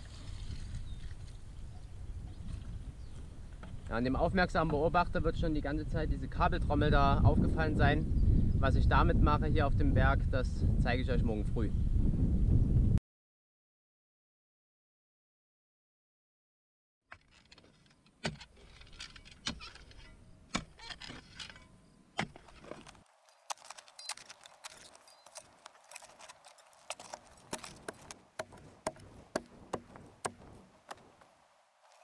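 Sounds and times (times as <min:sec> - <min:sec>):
shovelling soil and stones: 0:17.1 - 0:28.8.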